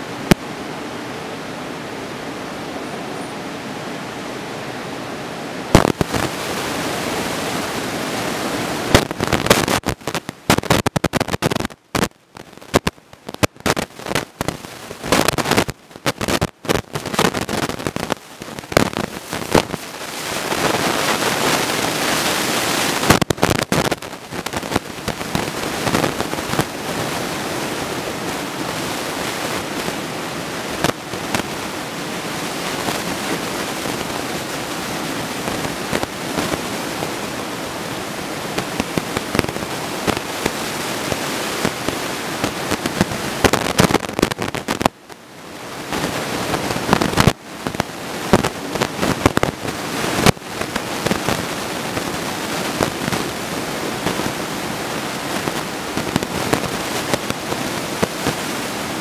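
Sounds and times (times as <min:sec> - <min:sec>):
ocean surf breaking: 0:00.0 - 0:12.1.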